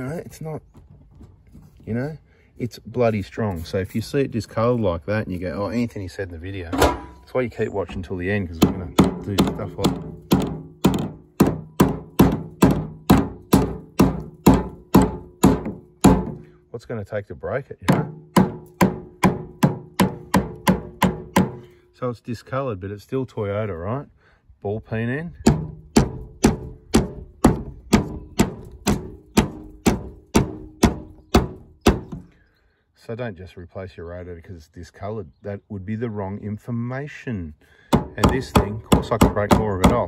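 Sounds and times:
hammer striking plastic: 0:08.6 - 0:16.5, 0:17.9 - 0:21.6, 0:25.5 - 0:32.3, 0:37.9 - 0:40.0.

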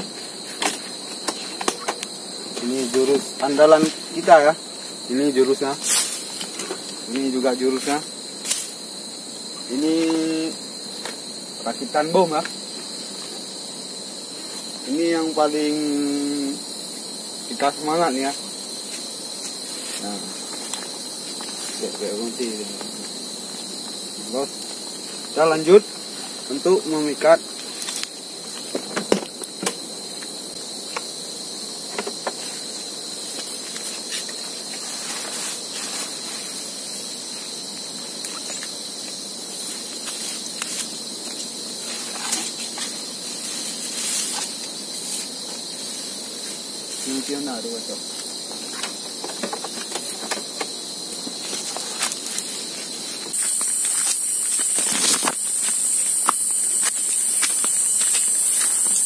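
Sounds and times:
insects shrilling: 0:00.0 - 0:59.0
loud high insect chorus: 0:00.0 - 0:59.0.

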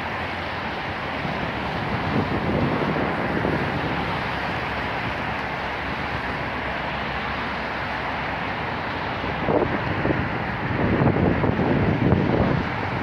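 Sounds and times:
distant city traffic: 0:00.0 - 0:13.0
wind on the microphone: 0:01.0 - 0:06.4, 0:09.2 - 0:13.0.

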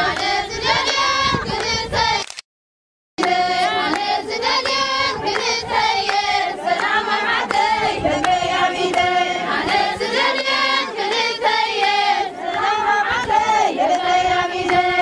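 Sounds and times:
women chanting together: 0:00.0 - 0:02.2, 0:03.2 - 0:15.0
sharp hand claps: 0:03.2 - 0:07.6.

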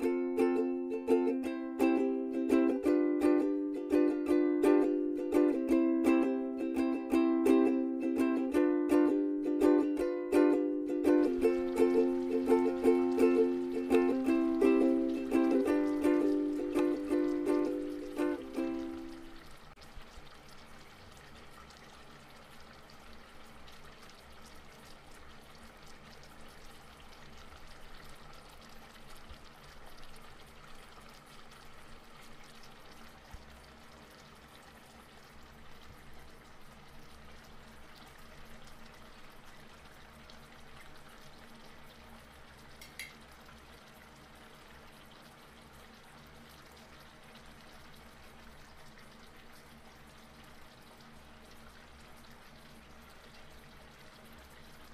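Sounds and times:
low steady hum: 0:00.0 - 0:54.9
porridge bubbling in a pot: 0:11.3 - 0:54.9.

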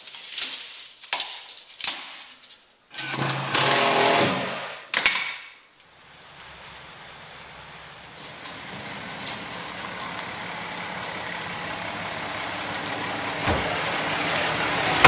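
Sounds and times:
power drill driving into wood: 0:03.0 - 0:04.8.

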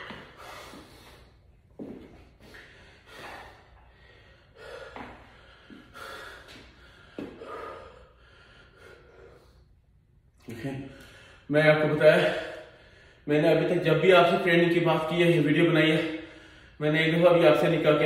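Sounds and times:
man gasping breaths: 0:00.0 - 0:01.5, 0:02.2 - 0:09.8, 0:10.6 - 0:11.5, 0:12.1 - 0:13.3, 0:16.0 - 0:16.8.

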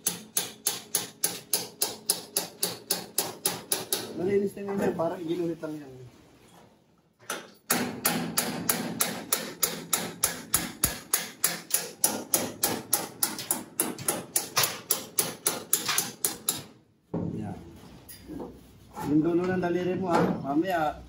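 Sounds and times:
hammer tapping chisel on metal: 0:00.0 - 0:04.2, 0:07.3 - 0:16.8.

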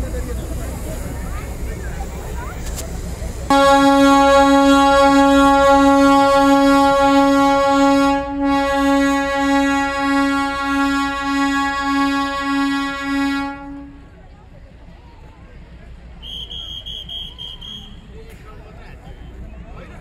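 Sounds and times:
train whistle: 0:03.5 - 0:14.2, 0:16.2 - 0:18.1.

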